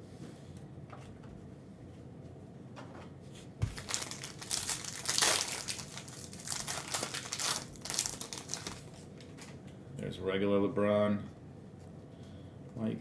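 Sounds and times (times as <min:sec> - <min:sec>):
foil wrapper crinkling: 0:03.6 - 0:09.6.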